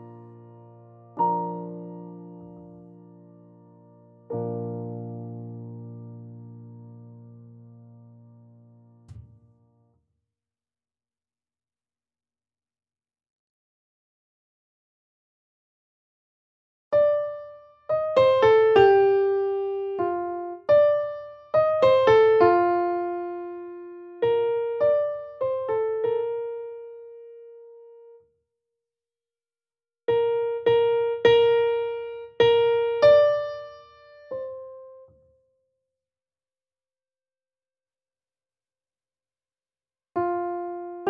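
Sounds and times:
solo piano: 0:00.0 - 0:09.9, 0:16.9 - 0:28.4, 0:30.1 - 0:35.6, 0:40.2 - 0:41.0.

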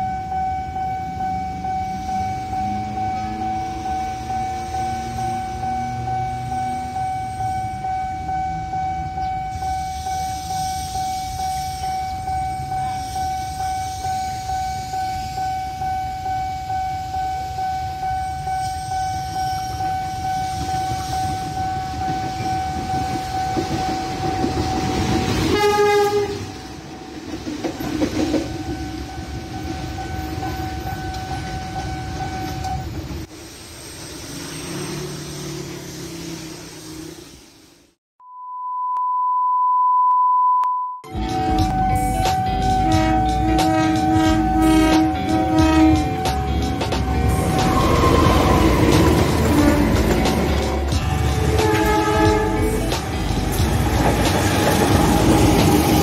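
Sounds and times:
level crossing alarm ringing: 0:00.0 - 0:26.0, 0:27.8 - 0:33.2, 0:41.0 - 0:52.8
locomotive horn blast: 0:25.4 - 0:26.6, 0:41.0 - 0:53.0
diesel locomotive rumble: 0:41.1 - 0:56.0.

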